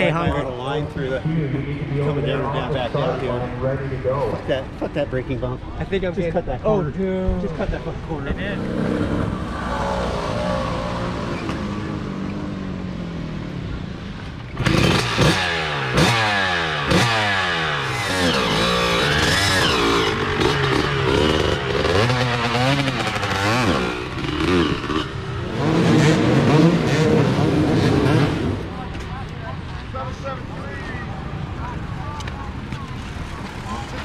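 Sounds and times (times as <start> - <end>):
motocross engine revving: 8.3 - 13.5, 14.6 - 28.8.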